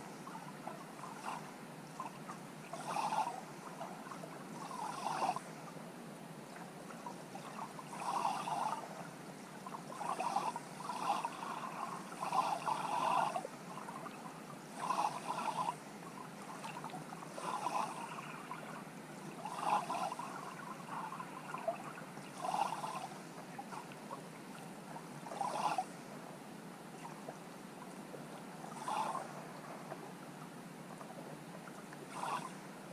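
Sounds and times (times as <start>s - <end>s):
muffled underwater hiss: 6.4s - 32.9s.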